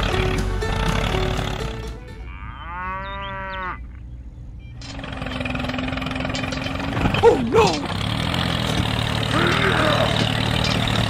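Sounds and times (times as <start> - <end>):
steady engine hum: 0.0 - 2.6, 3.8 - 11.0
cow mooing: 2.2 - 4.0.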